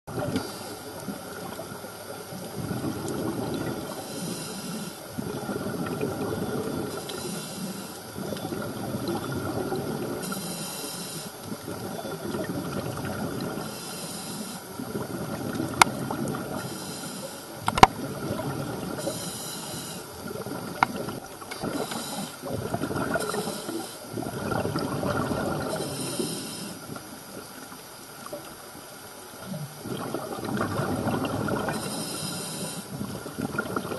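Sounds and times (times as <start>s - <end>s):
bubbly exhales burbling: 0.1s - 4.0s, 5.1s - 7.2s, 8.2s - 10.3s, 11.5s - 13.6s, 14.8s - 16.7s, 17.6s - 19.1s, 20.1s - 26.0s, 29.4s - 31.9s, 32.9s - 33.9s
hissing regulator inhale: 0.2s - 1.0s, 3.7s - 5.8s, 6.5s - 8.2s, 10.2s - 11.4s, 13.6s - 14.8s, 16.4s - 17.7s, 19.0s - 20.3s, 21.6s - 24.2s, 25.5s - 27.0s, 31.6s - 33.0s
sharp clicks: 17.7s - 17.9s.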